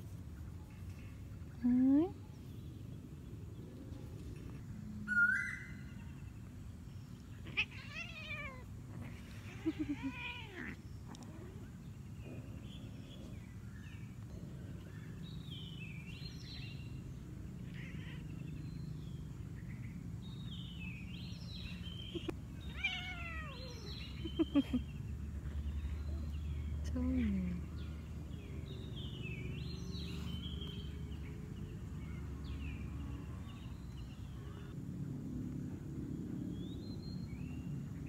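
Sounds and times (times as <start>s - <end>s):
cat meowing: 7.5s - 8.6s, 22.6s - 23.9s.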